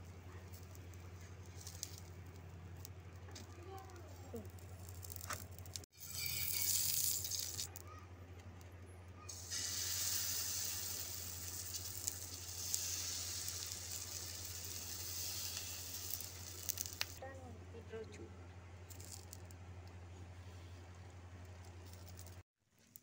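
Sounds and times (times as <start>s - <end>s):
batter sizzling on hot griddle: 9.3s - 17.2s.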